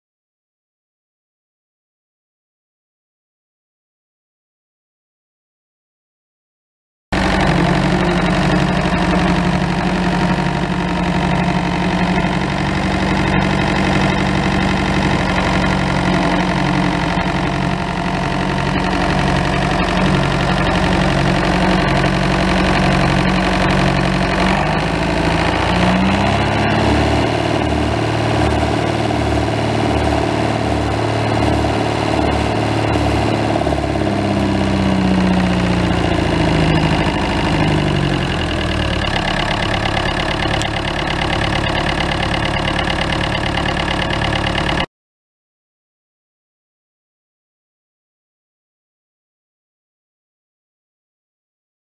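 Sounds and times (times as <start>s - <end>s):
diesel engine idling: 7.2s - 44.9s.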